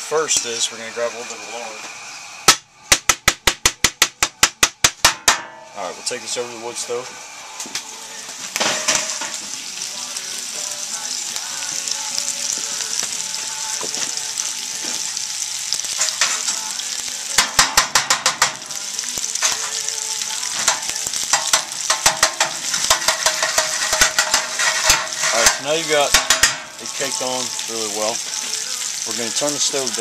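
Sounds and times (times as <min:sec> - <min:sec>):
lard sizzling in a pan: 0:00.0 - 0:30.0
metal spoon scraping a pan: 0:08.6 - 0:09.5, 0:15.9 - 0:16.7, 0:17.4 - 0:20.0, 0:20.6 - 0:27.2.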